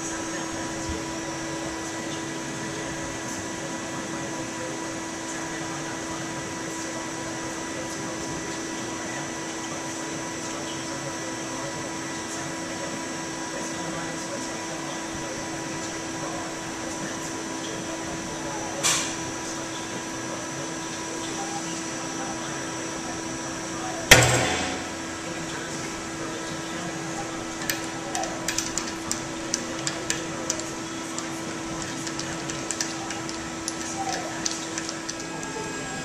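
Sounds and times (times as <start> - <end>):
steady machine hum: 13.2 - 36.0
metal specimen snapping with bang: 24.1 - 25.4.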